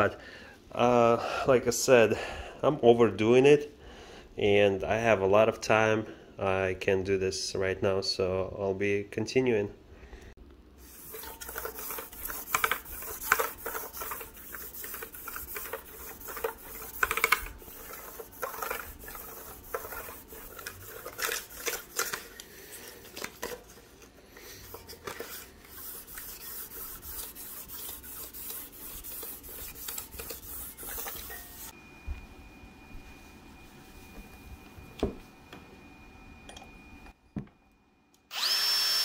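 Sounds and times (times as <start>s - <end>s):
sandpaper scratching on metal: 10.8s - 22.2s, 24.7s - 31.7s.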